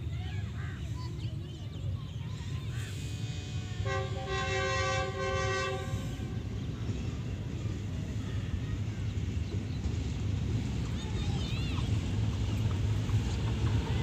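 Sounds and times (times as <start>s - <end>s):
train horn: 3.4s - 6.6s.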